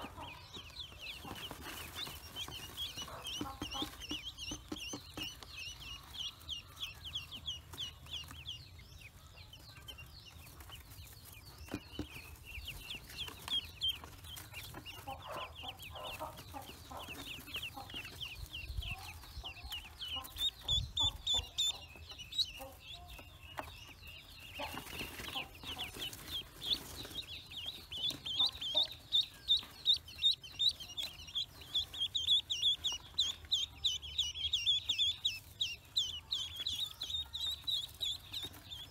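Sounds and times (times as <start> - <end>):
ducklings peeping: 0.0 - 38.9.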